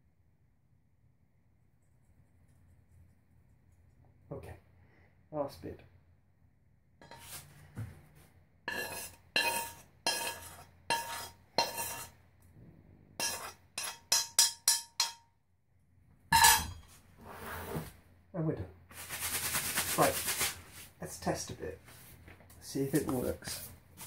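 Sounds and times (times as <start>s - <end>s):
spoon scraping metal pan: 7.0s - 7.4s, 8.7s - 12.2s, 13.2s - 15.2s
pan and spoon clattering down: 13.2s - 15.2s, 16.3s - 16.8s
spoon tapping pan: 13.2s - 15.2s.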